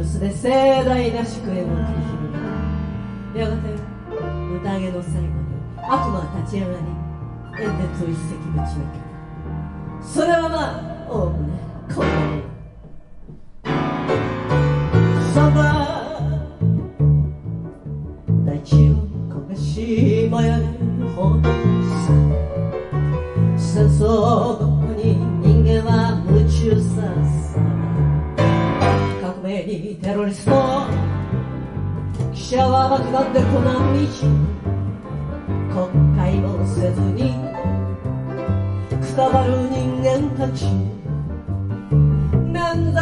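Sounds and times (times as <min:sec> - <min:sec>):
woman singing: 0:00.0 - 0:02.6, 0:03.3 - 0:09.2, 0:10.0 - 0:12.8, 0:15.1 - 0:16.7, 0:18.4 - 0:22.4, 0:23.4 - 0:27.6, 0:28.8 - 0:31.4, 0:32.2 - 0:34.7, 0:35.6 - 0:37.9, 0:38.9 - 0:41.1, 0:42.3 - 0:43.0
plucked double bass: 0:00.0 - 0:43.0.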